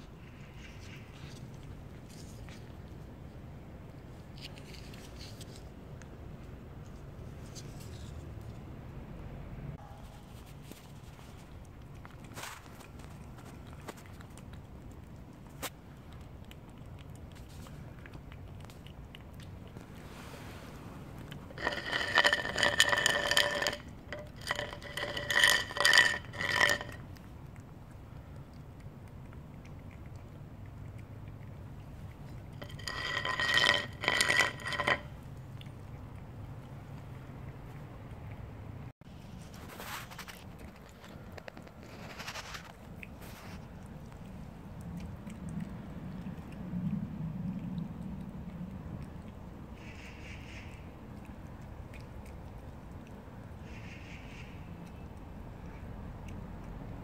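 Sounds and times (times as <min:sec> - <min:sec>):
cat chewing wet food: 0:00.0 - 0:08.3, 0:10.3 - 0:57.0.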